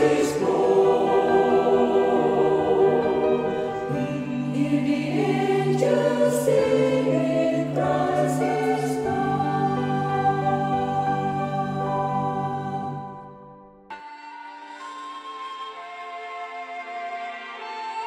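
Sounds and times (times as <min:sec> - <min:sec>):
choir singing held chords: 0:00.0 - 0:13.5.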